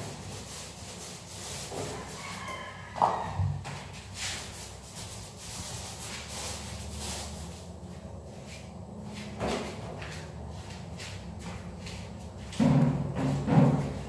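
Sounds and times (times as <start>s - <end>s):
paint roller swishing on wall: 0.0s - 14.0s.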